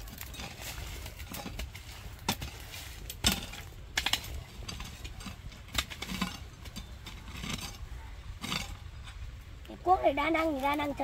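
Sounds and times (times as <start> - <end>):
hoe chopping and scraping soil: 0.0 - 9.3.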